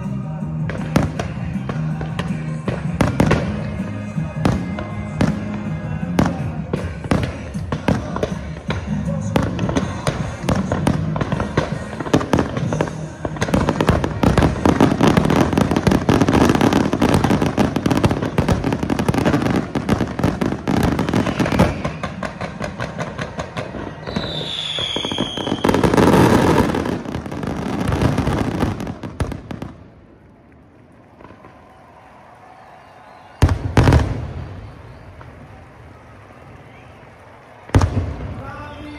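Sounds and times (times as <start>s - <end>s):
fireworks bangs and crackling: 0.0s - 38.9s
falling firework whistle: 19.4s - 22.6s, 23.6s - 27.0s, 31.3s - 35.6s.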